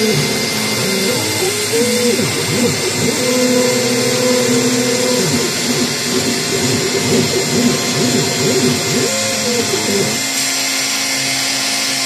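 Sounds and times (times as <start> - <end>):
drive motors humming: 0.0 - 10.5
router spindle cutting plastic: 0.0 - 12.0.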